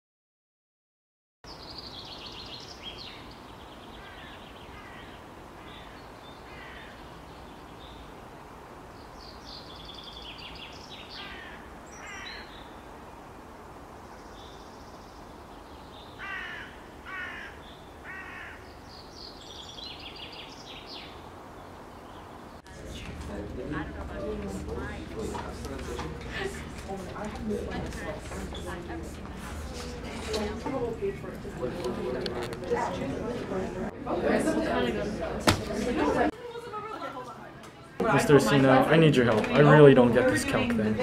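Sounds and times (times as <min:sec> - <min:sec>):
harsh bird calls: 0:01.5 - 0:08.1, 0:09.0 - 0:12.9, 0:14.0 - 0:22.6
birds calling and chirping: 0:01.5 - 0:08.2, 0:08.9 - 0:13.0, 0:14.0 - 0:23.3
steady background noise: 0:01.5 - 0:41.0.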